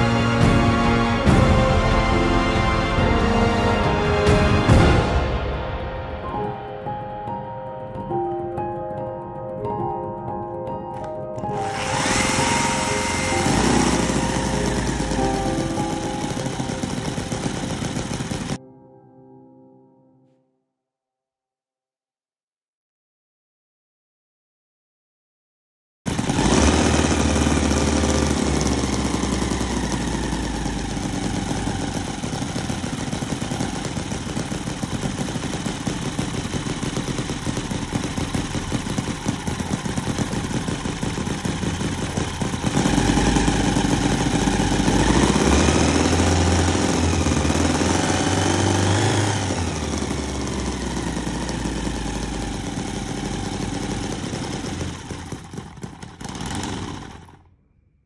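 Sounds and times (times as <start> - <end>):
small engine running: 0.0 - 5.7, 11.0 - 18.6, 26.1 - 57.6.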